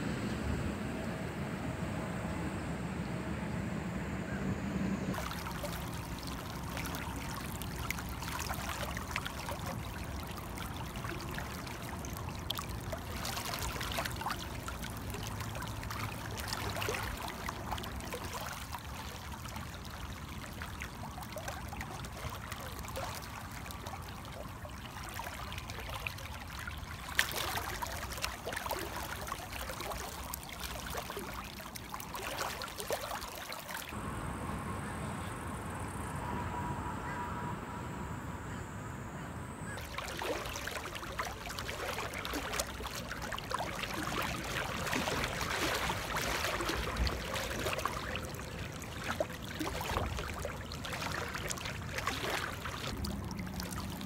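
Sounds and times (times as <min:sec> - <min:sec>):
water splashes: 0:05.1 - 0:34.0, 0:39.7 - 0:54.0
river water rushing and babbling: 0:05.1 - 0:38.5, 0:39.7 - 0:54.0.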